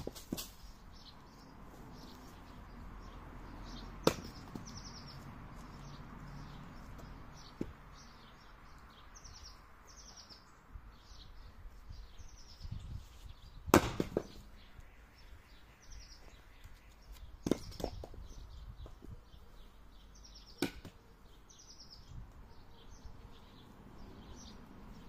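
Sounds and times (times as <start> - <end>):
birds chirping: 0.0 - 25.0
axe knocking into chopping block: 4.0 - 4.6, 13.7 - 14.3
axe splitting log: 4.0 - 4.7, 13.7 - 14.4, 20.6 - 21.0.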